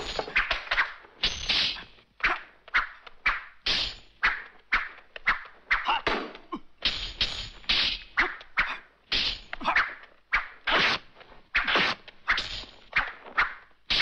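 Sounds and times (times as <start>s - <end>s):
whooshing swings: 0.0s - 14.0s
sharp fight hits: 9.1s - 9.8s.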